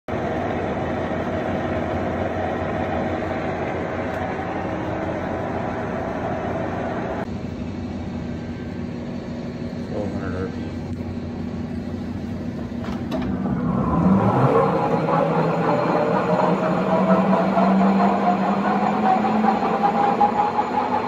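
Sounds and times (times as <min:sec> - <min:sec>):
lathe gears whining: 0:12.2 - 0:21.0.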